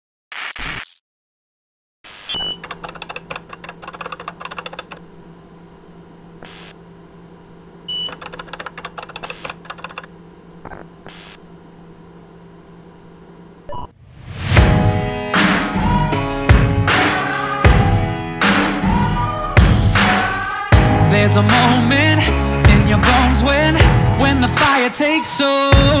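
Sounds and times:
steady electronic hum: 2.3s - 14.0s
keyboard typing clicks: 2.4s - 5.0s, 7.9s - 10.1s.

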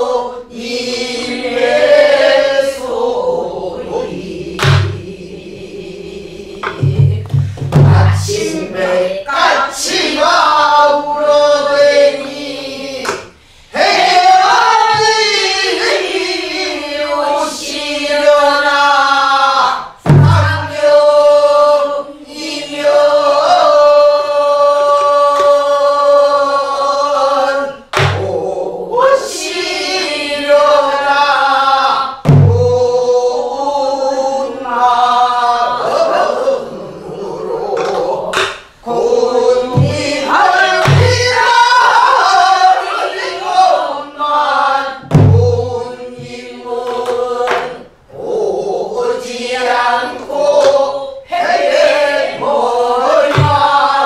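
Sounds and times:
low barrel drum strokes: 6.6s - 8.4s.

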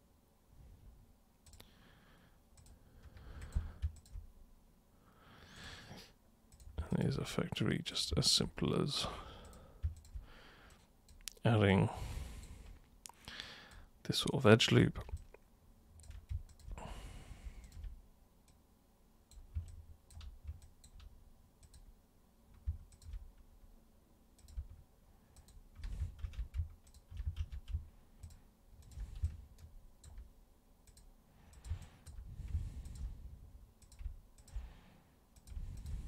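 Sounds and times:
mouse and keyboard clicking: 2.6s - 4.2s, 9.5s - 11.3s, 16.0s - 16.8s, 19.3s - 21.9s, 22.5s - 23.4s, 24.4s - 24.8s, 25.4s - 30.3s, 33.8s - 34.6s.

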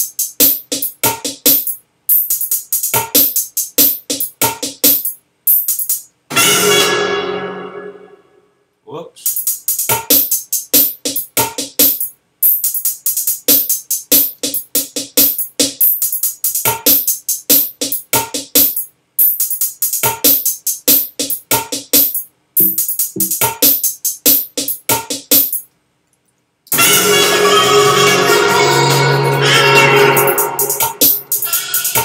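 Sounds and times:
drum machine beat: 0.0s - 6.2s, 9.2s - 25.7s, 30.1s - 32.0s.

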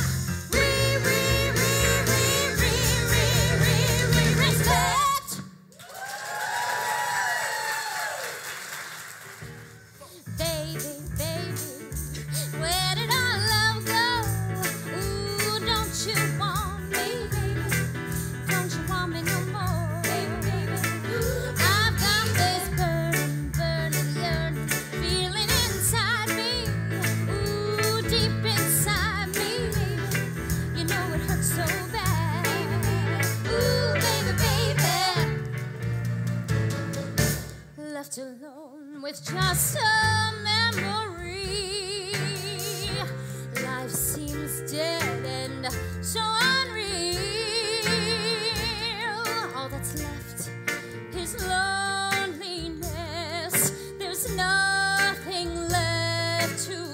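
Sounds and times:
live band music: 0.0s - 5.5s, 9.5s - 37.8s, 39.2s - 56.9s
women singing: 0.5s - 5.4s, 12.7s - 17.9s, 18.5s - 35.4s, 37.8s - 50.5s, 51.2s - 56.9s.

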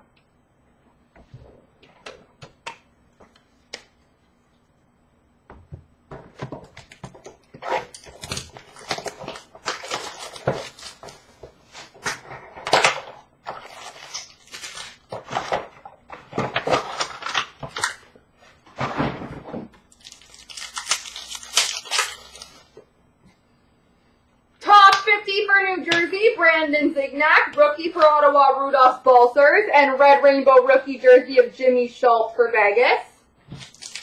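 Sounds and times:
paper and cardboard tearing: 7.6s - 12.9s, 13.5s - 15.7s, 19.9s - 22.7s, 33.5s - 34.0s
wrappers crinkling: 7.8s - 12.1s, 13.4s - 15.7s, 19.9s - 22.8s, 33.5s - 34.0s.

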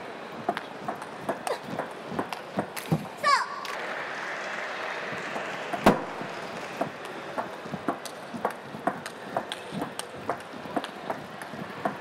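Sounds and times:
table tennis ball clicking: 5.7s - 12.0s.

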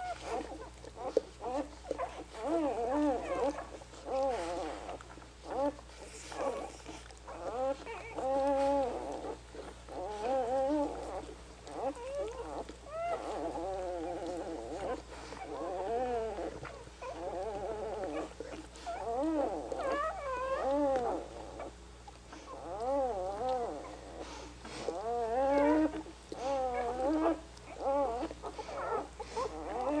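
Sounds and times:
puppies crying: 0.0s - 30.0s.

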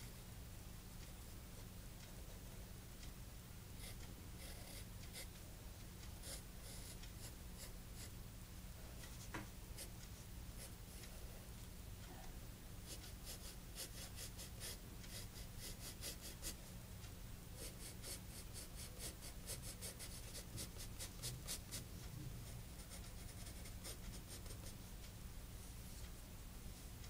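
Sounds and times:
pencil scratching on paper: 3.8s - 5.3s, 6.2s - 8.1s, 12.8s - 16.6s, 17.6s - 21.9s, 22.8s - 24.8s.

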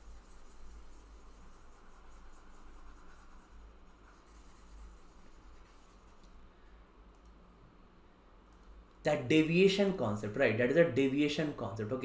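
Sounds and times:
stylus scratching on pen tablet: 0.0s - 6.4s.

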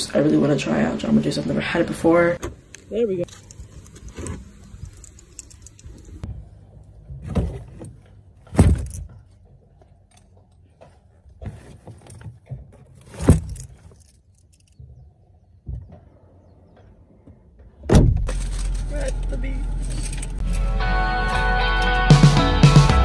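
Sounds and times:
metal camp chairs clattering: 11.4s - 14.8s, 18.1s - 20.6s.

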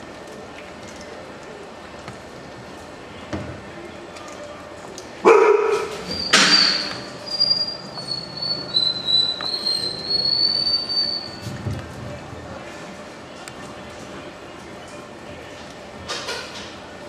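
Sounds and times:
puppy high-pitched whine: 5.7s - 11.4s.

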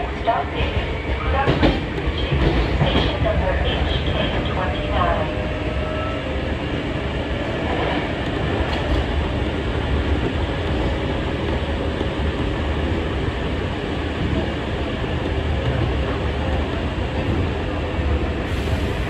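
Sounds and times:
train wheels and motors running: 7.1s - 19.0s.

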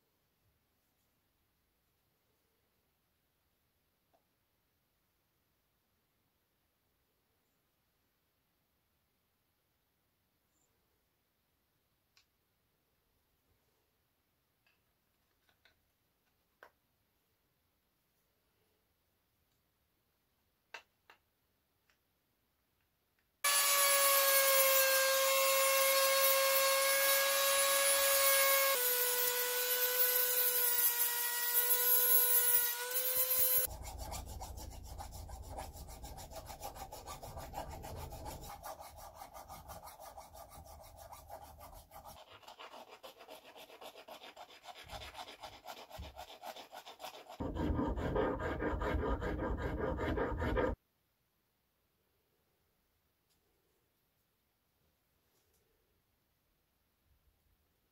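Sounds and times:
hand rubbing and scraping wood: 33.3s - 50.8s.

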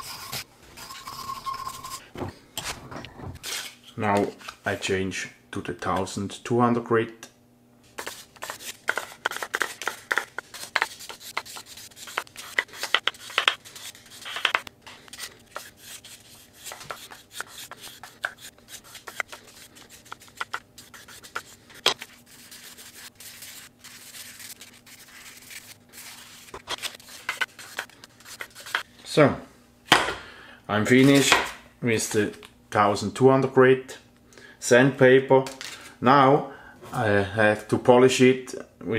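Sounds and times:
sandpaper rubbing on steel: 15.5s - 28.8s.

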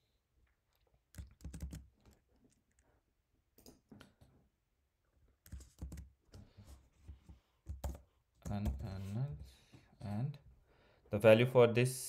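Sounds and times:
keyboard and mouse clicks: 1.1s - 2.8s.

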